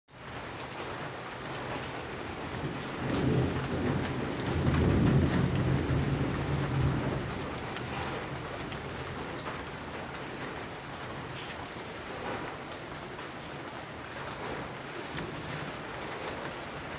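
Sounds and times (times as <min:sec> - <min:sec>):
raindrops ticking: 0:00.1 - 0:16.9
steady rain falling: 0:00.1 - 0:16.9
thunder rumbling: 0:02.4 - 0:10.8.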